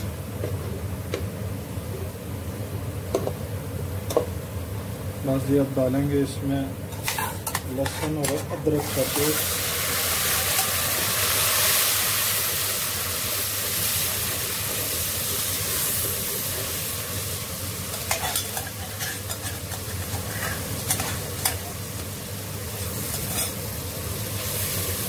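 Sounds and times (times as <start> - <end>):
metal spoon scraping and stirring: 7.0 - 8.9, 18.1 - 21.6
paste sizzling in hot oil: 8.1 - 25.0.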